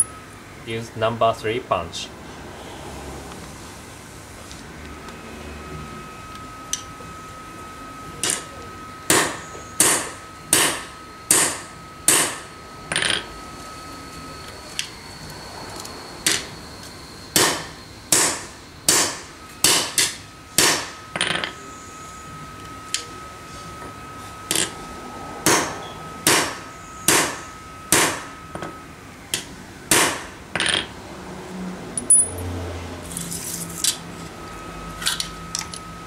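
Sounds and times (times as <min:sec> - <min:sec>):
hammer striking steel punch: 0:09.1 - 0:12.4, 0:17.4 - 0:21.5, 0:25.4 - 0:28.3, 0:29.9 - 0:30.8.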